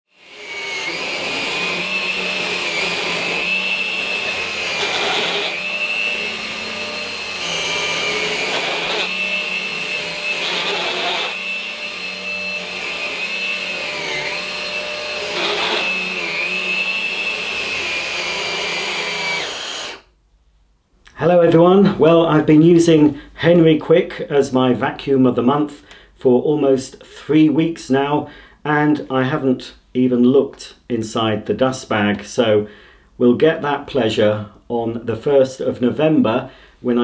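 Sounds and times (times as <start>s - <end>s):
stick vacuum running on carpet: 0.2s - 19.9s.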